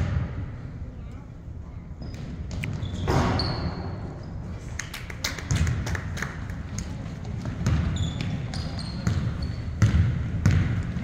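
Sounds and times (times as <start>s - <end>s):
sneakers squeaking on gym floor: 2.0s - 4.5s, 7.4s - 11.0s
basketball bouncing: 7.2s - 11.0s.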